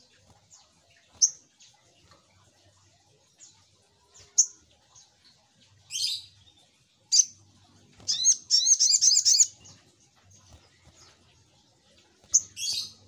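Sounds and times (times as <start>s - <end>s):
bird high sharp chirps: 8.0s - 9.6s.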